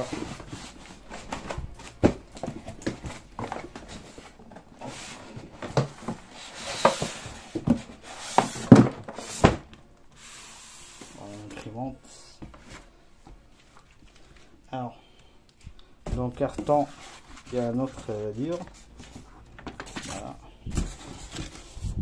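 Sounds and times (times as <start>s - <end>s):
cardboard box scraping and rubbing: 20.1s - 22.0s.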